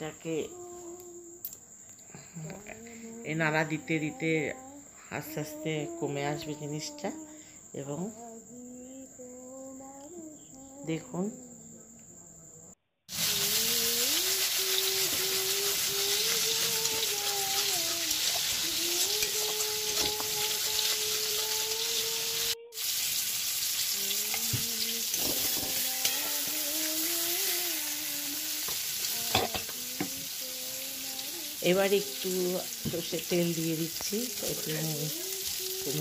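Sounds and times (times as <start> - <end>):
paste sizzling in a pan: 13.1 - 36.0.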